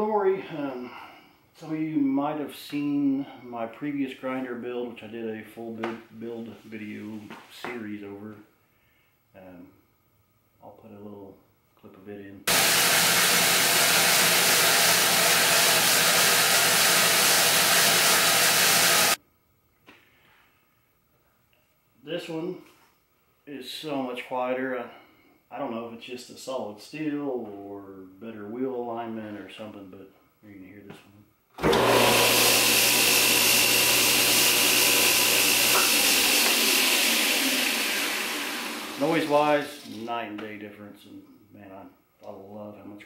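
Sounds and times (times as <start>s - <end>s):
belt grinder hissing: 12.5s - 19.2s, 31.6s - 40.1s.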